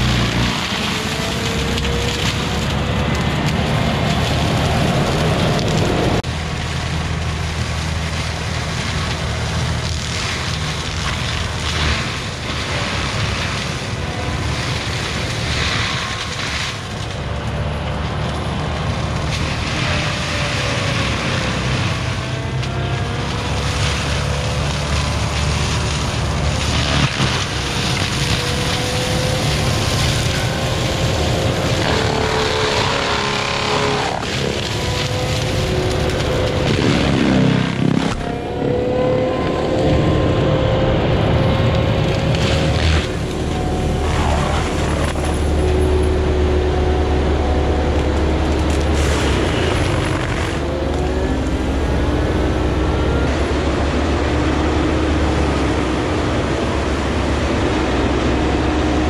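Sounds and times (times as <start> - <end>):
diesel engine running hard: 0.0 - 59.0.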